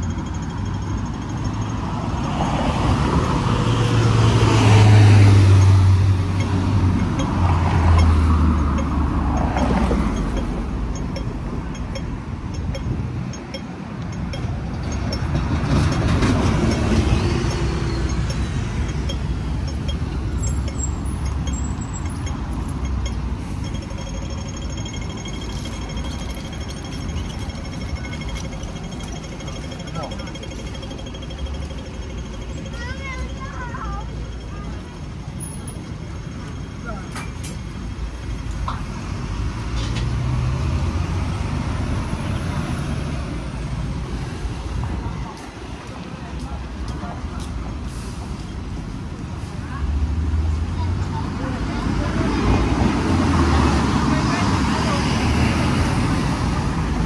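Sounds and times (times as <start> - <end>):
passing vehicles rumble: 0.0 - 57.0
traffic hum: 0.0 - 57.0
vehicle passing: 1.5 - 13.4.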